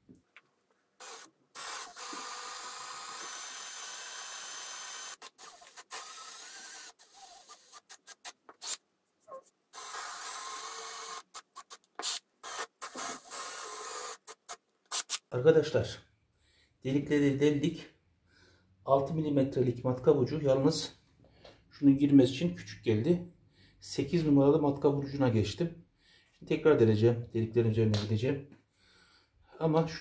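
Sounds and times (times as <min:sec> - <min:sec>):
cordless drill boring wood: 0:01.0 - 0:08.8, 0:09.8 - 0:15.2.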